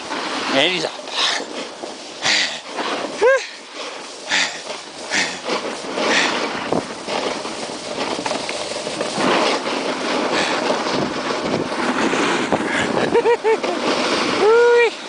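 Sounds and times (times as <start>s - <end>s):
snowboard scraping over snow: 0.0s - 15.0s.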